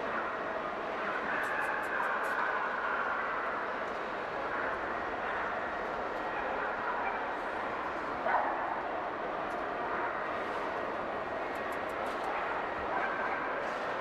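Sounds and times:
crowd murmur in a large hall: 0:00.0 - 0:14.0
dog barking: 0:01.3 - 0:02.6, 0:08.3 - 0:08.6, 0:12.4 - 0:13.6.

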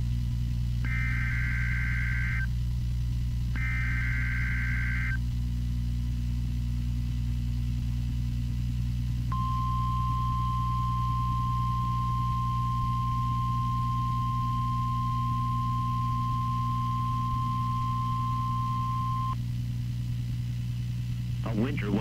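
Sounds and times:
steady low hum: 0:00.0 - 0:22.0
steady high alarm tone: 0:00.9 - 0:02.5, 0:03.6 - 0:05.2, 0:09.3 - 0:19.4.

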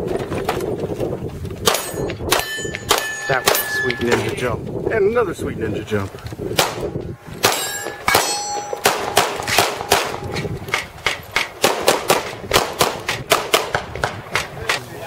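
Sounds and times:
handgun shots: 0:01.6 - 0:03.8, 0:06.6 - 0:14.5
steel targets clanging: 0:01.7 - 0:04.4, 0:07.4 - 0:10.3.

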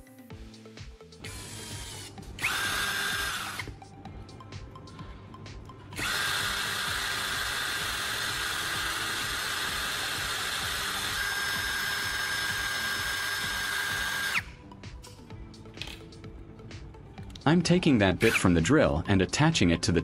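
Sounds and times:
cordless drill whining: 0:01.2 - 0:03.8, 0:05.9 - 0:14.6.

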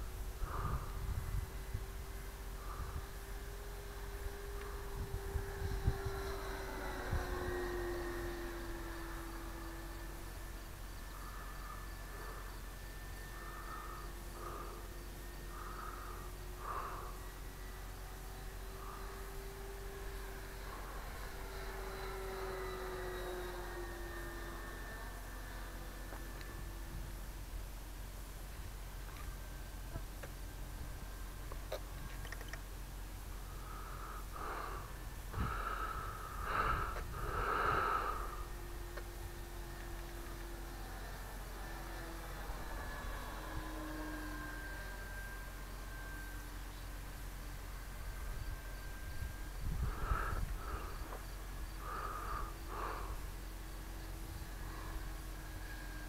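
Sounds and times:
distant model plane motor hum: 0:00.0 - 0:56.0
person breathing: 0:00.3 - 0:05.5, 0:11.0 - 0:19.7, 0:33.5 - 0:38.6, 0:49.5 - 0:55.8.

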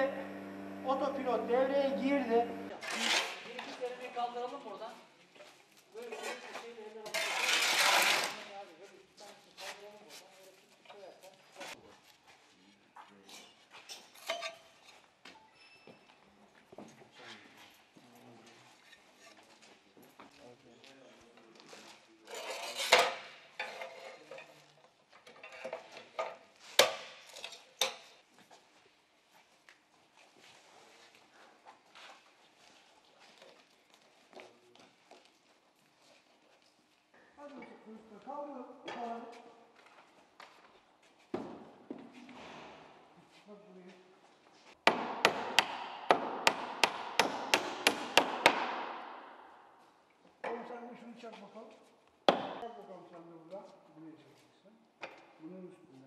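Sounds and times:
hammer driving nails into wood: 0:44.9 - 0:49.3.

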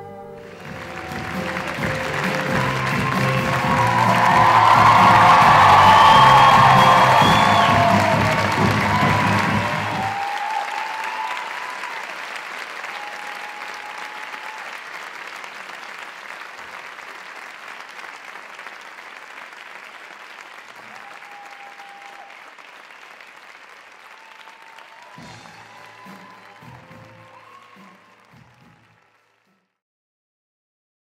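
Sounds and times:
music: 0:00.0 - 0:10.2, 0:25.1 - 0:29.8
audience applauding: 0:00.4 - 0:29.8.

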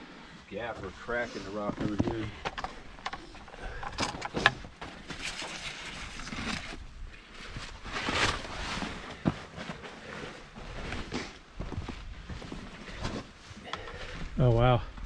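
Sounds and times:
footsteps crunching on rocky trail: 0:07.5 - 0:15.0.

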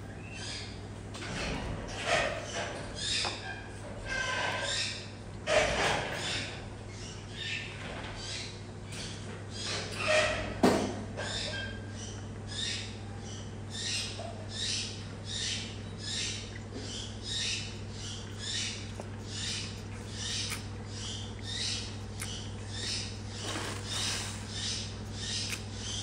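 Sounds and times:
steady low hum: 0:00.0 - 0:26.0
wet sucking and slurping: 0:22.1 - 0:24.6.

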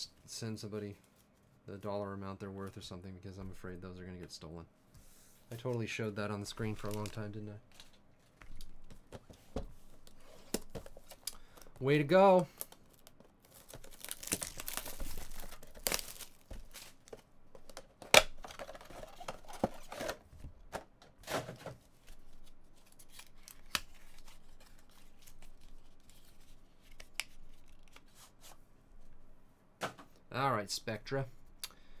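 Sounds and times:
plastic wrap tearing and crinkling: 0:12.5 - 0:17.2.

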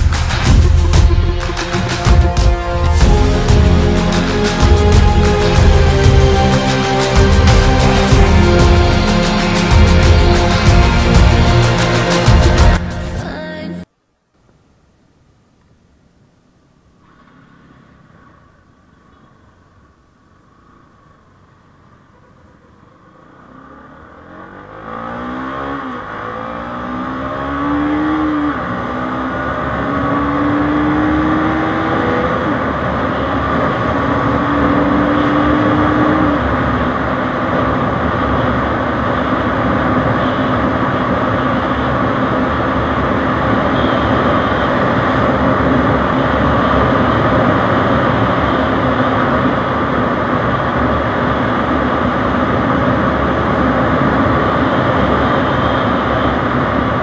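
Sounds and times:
wind and road noise: 0:00.0 - 0:13.3, 0:14.4 - 0:57.0
motorcycle engine accelerating: 0:21.0 - 0:57.0.

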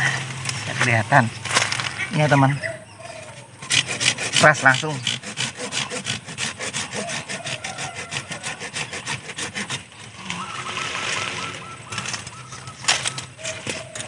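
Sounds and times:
hand saw cutting wood: 0:03.3 - 0:10.5.

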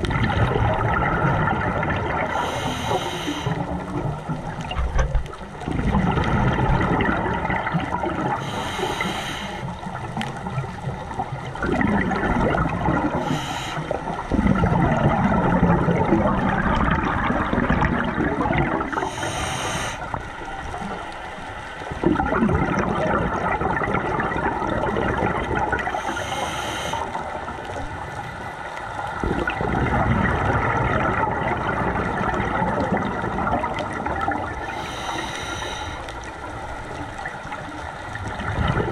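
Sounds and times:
regulator bubbling exhalations: 0:00.0 - 0:04.6, 0:11.6 - 0:20.2, 0:22.0 - 0:27.5, 0:29.2 - 0:36.5
regulator hissing inhale: 0:02.3 - 0:03.8, 0:08.4 - 0:09.8, 0:13.2 - 0:14.2, 0:19.0 - 0:20.3, 0:25.9 - 0:27.4, 0:34.6 - 0:36.3.

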